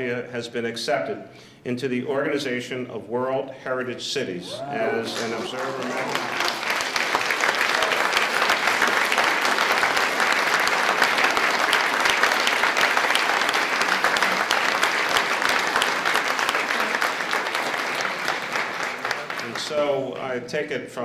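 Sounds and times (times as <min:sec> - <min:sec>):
audience applauding: 0:04.5 - 0:20.3.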